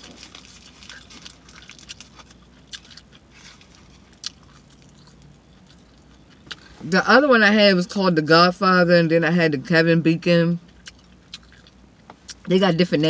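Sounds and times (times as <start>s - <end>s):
person chewing with wet smacking: 0.0s - 6.7s, 10.7s - 12.5s.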